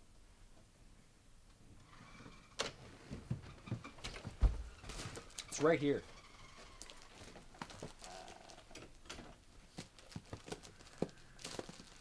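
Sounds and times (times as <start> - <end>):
comic books being flipped: 6.5 - 8.9, 9.6 - 12.0.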